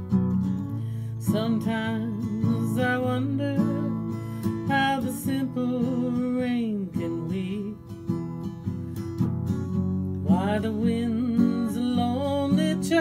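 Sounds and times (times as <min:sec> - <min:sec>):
strummed acoustic guitar: 0:00.0 - 0:13.0.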